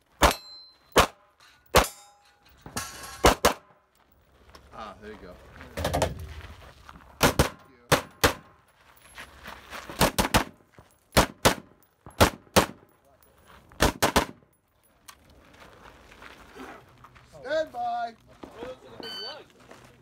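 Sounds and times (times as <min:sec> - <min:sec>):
rifle gunshots: 0:07.2 - 0:08.5, 0:11.2 - 0:12.8, 0:13.8 - 0:14.4.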